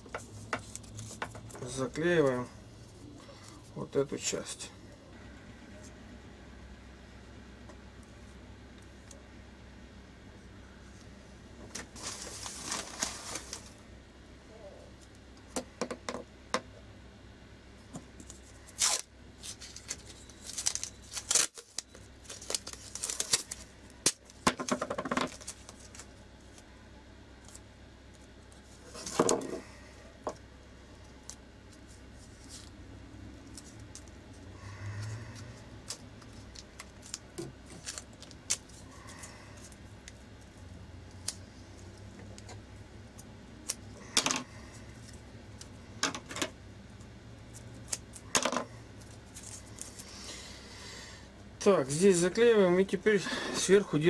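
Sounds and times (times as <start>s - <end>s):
packing tape ripping: 18.6s - 24.4s.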